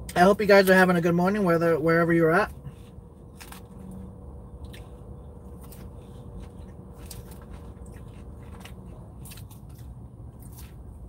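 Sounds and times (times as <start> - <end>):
low car hum: 0.0 - 11.0
person chewing salad: 2.6 - 11.0.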